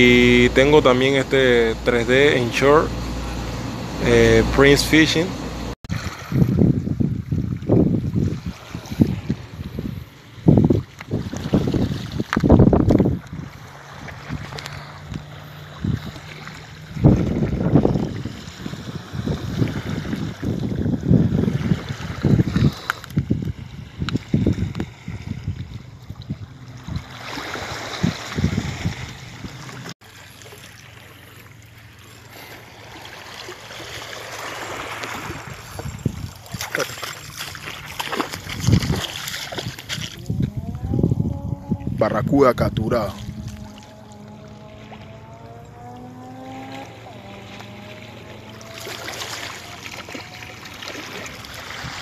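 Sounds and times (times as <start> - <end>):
wind buffeting microphone: 5.5 - 29.9, 34.8 - 49.8
water lapping over rocks: 5.9 - 52.0
fish thrashing and splashing: 21.5 - 41.6, 43.2 - 52.0.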